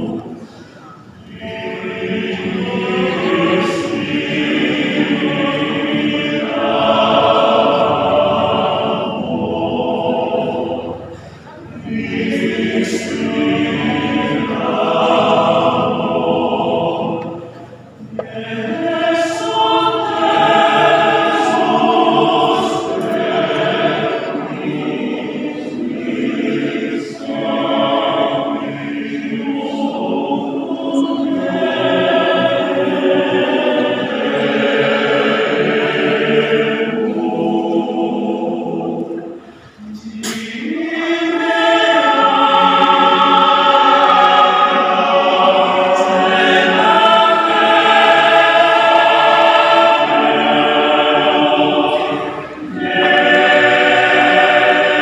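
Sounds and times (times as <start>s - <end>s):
male choir singing a cappella: 0.0s - 55.0s.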